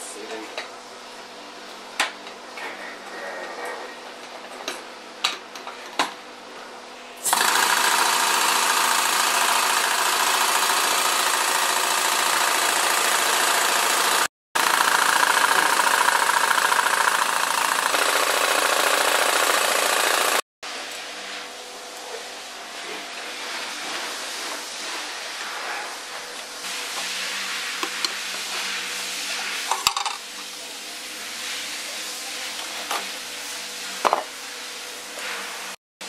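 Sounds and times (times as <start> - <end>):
paint can shaker running: 7.2 - 20.4.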